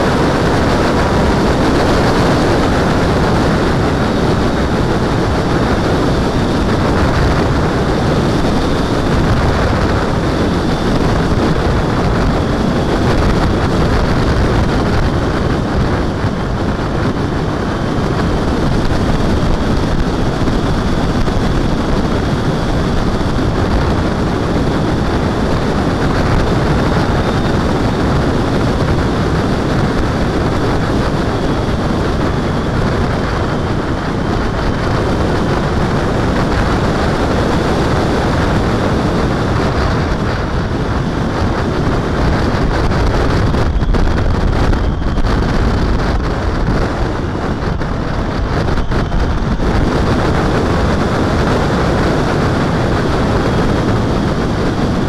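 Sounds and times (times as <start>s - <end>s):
motorcycle engine: 0.0s - 55.0s
road noise: 0.0s - 55.0s
wind rushing over microphone: 0.0s - 55.0s.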